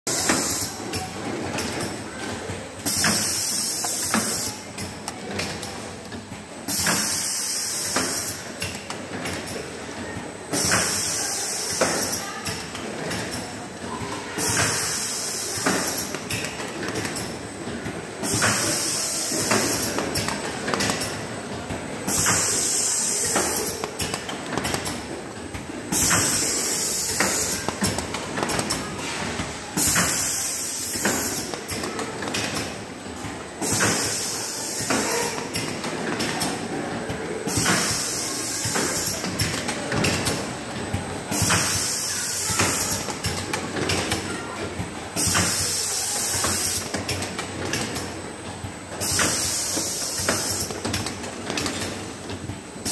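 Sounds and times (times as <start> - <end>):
pneumatic air hiss: 6.7 - 8.4, 22.1 - 23.8, 25.9 - 27.8, 29.8 - 31.8, 33.6 - 35.5, 37.5 - 39.2, 41.3 - 43.3, 45.2 - 46.9, 49.0 - 50.7.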